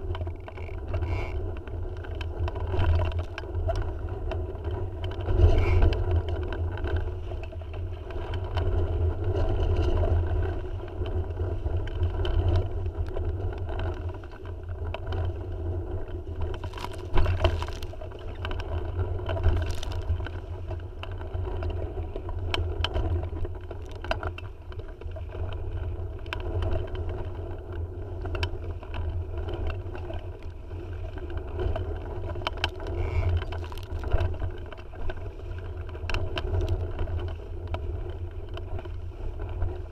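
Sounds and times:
boat knocks and clicks: 0:00.0 - 0:10.2, 0:31.1 - 0:39.8
rumble of wind and water: 0:00.0 - 0:39.9.

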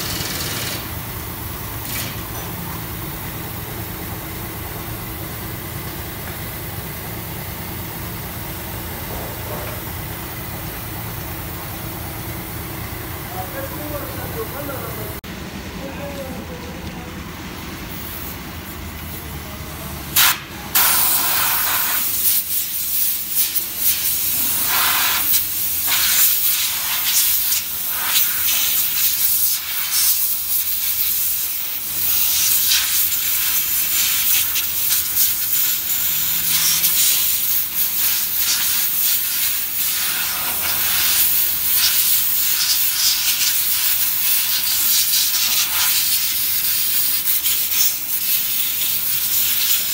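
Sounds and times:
compressed air blow gun hissing: 0:20.2 - 0:49.9.

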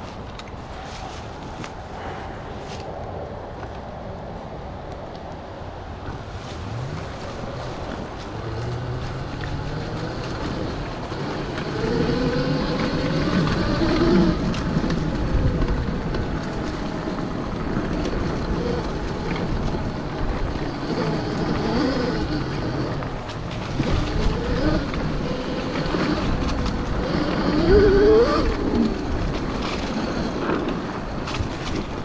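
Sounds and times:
wind noise on microphone: 0:00.0 - 0:32.0
electric motorbike motor whining: 0:06.1 - 0:32.0.

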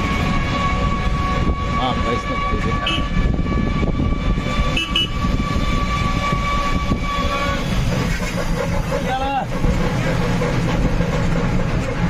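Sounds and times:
road vehicle rumble: 0:00.0 - 0:12.0.

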